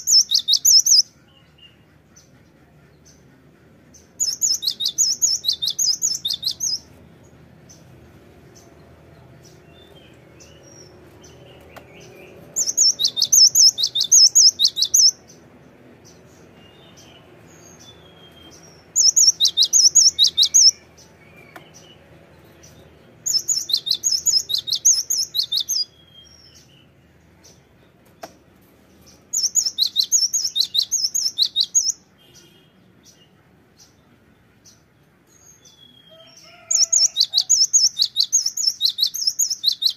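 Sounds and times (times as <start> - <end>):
bird singing high repeated notes: 12.6 - 15.2, 17.8 - 20.8, 29.4 - 32.0.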